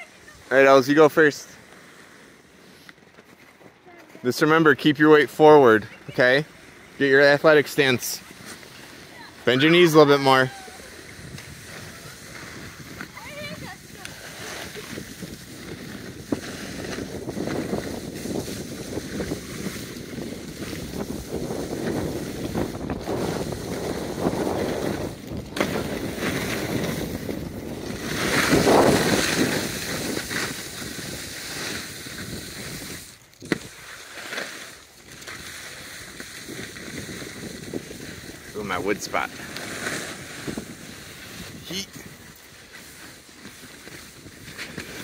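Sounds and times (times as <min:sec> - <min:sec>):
skis sliding over snow: 0:00.0 - 0:45.0
wind rushing over microphone: 0:09.1 - 0:33.8, 0:36.0 - 0:42.4.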